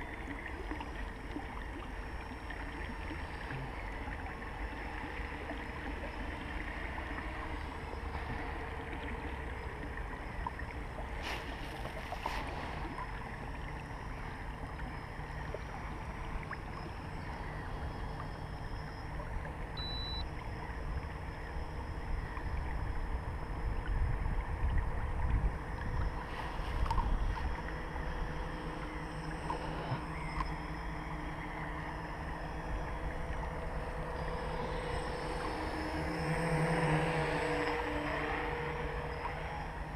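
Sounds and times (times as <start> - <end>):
small waves lapping against hull: 0.0 - 39.9
wind rumbling on microphone: 21.0 - 29.0.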